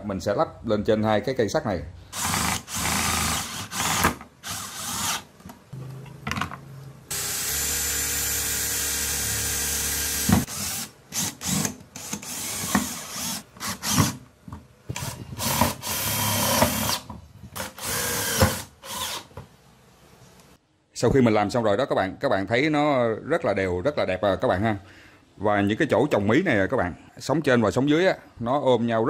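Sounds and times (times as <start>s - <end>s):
electric drill driving screws: 2.2s - 5.3s, 7.1s - 14.2s, 14.9s - 19.3s.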